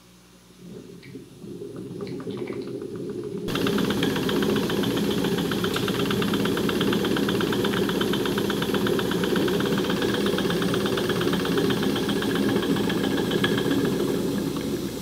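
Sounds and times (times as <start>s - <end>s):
toy steam engine chugging: 3.5s - 15.0s.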